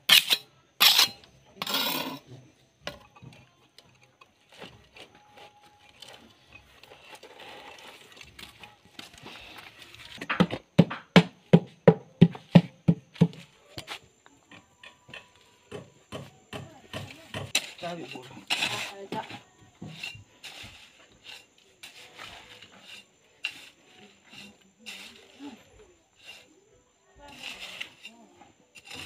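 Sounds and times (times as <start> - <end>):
quiet scraping: 0.2 - 10.3, 17.1 - 29.0
knocks on concrete: 10.2 - 13.4.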